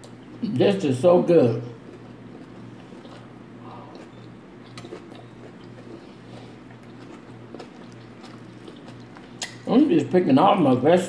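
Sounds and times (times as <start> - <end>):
person chewing food: 0.0 - 0.7, 1.7 - 9.7
steady low hum: 0.0 - 11.0.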